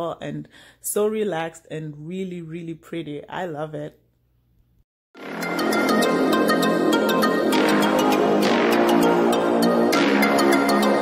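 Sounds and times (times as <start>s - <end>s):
electronic music with synths: 5.2s - 11.0s.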